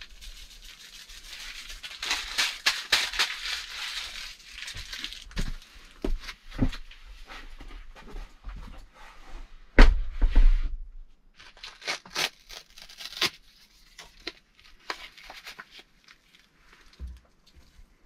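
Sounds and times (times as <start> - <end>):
paper packet tearing and crinkling: 0.0 - 5.4, 11.4 - 16.9
heavy thump: 9.8 - 10.7.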